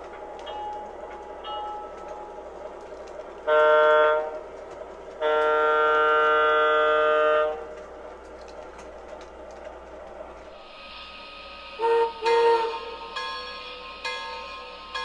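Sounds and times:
model trains running on track: 0:00.0 - 0:15.0
model train horn chord: 0:03.4 - 0:04.4, 0:05.2 - 0:07.7, 0:11.8 - 0:13.1.

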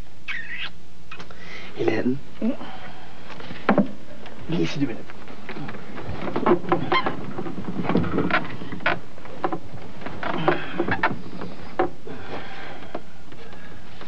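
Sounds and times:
steady hiss and low hum: 0:00.0 - 0:14.0
bedding and clothes rustling: 0:02.9 - 0:14.0
soft knocks and creaks: 0:03.3 - 0:14.0.

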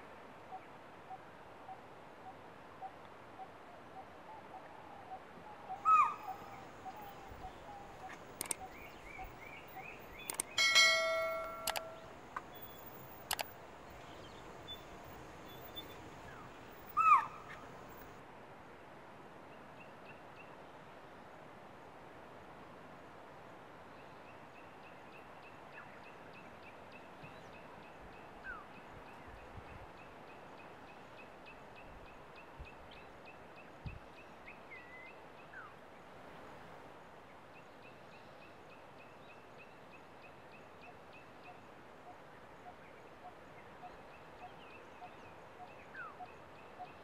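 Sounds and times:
loud harsh bird call: 0:05.8 - 0:12.8, 0:14.6 - 0:18.0
loud falling bird calls: 0:05.8 - 0:18.2
sharp clicks: 0:08.1 - 0:09.0, 0:10.1 - 0:14.0.

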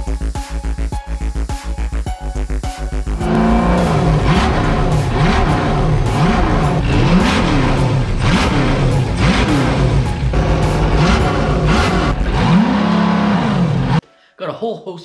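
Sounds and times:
engine revving: 0:03.1 - 0:14.0.

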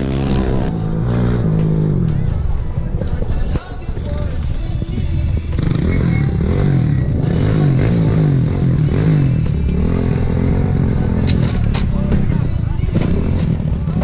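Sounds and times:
race vehicle engine revving: 0:00.0 - 0:02.4, 0:05.5 - 0:14.0.

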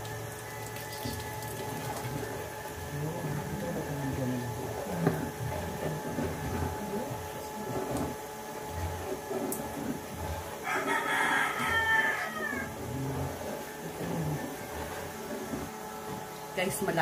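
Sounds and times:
rooster crowing: 0:10.6 - 0:12.8.

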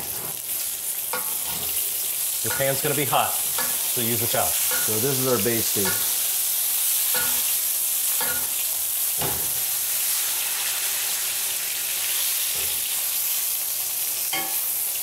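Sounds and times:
butter sizzling in skillet: 0:00.0 - 0:15.0
spoon knocking against pan: 0:02.5 - 0:02.8, 0:03.5 - 0:03.9, 0:04.6 - 0:05.0, 0:05.8 - 0:06.2, 0:07.1 - 0:07.5.

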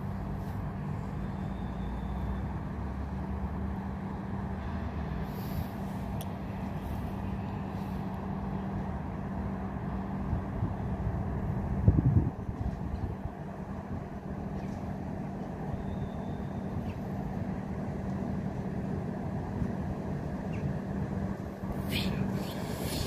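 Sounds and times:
locomotive humming: 0:15.0 - 0:23.0.

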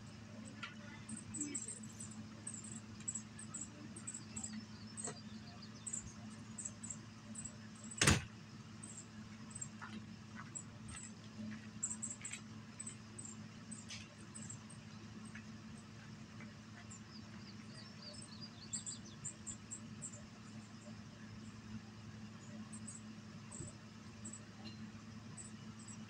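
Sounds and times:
steady low hum: 0:00.0 - 0:26.0
door shutting thump: 0:08.0 - 0:08.3.

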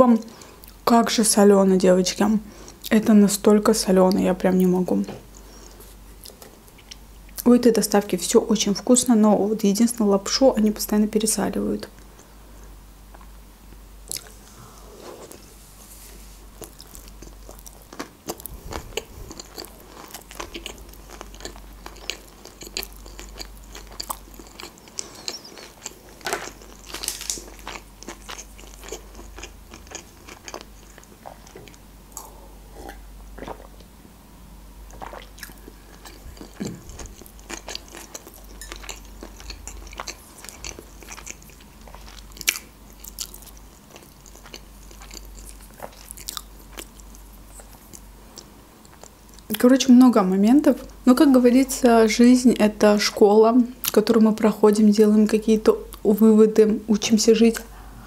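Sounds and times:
close chewing and mouth clicks: 0:16.6 - 0:33.9, 0:34.9 - 0:49.6.

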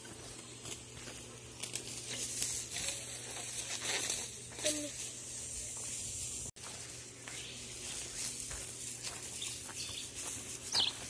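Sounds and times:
steady high hiss: 0:00.0 - 0:11.0
bird chirping: 0:09.3 - 0:11.0.

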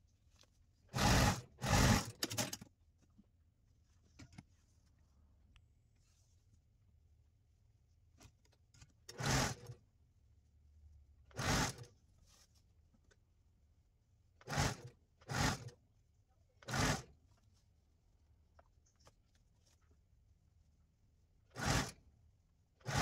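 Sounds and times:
sewing machine stitching: 0:00.9 - 0:02.7, 0:09.1 - 0:09.8, 0:11.3 - 0:12.0, 0:14.4 - 0:15.8, 0:16.6 - 0:17.2, 0:21.5 - 0:22.0.

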